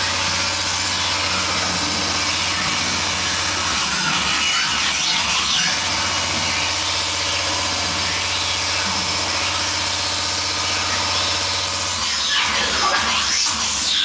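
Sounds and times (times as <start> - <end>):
harsh distortion noise: 0.0 - 14.0.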